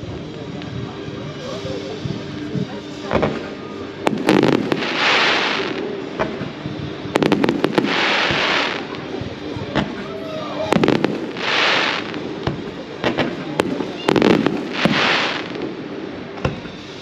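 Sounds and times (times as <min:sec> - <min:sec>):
firework sizzling hiss: 0:00.0 - 0:17.0
firework shells bursting: 0:04.0 - 0:06.5, 0:07.2 - 0:09.0, 0:10.7 - 0:16.6.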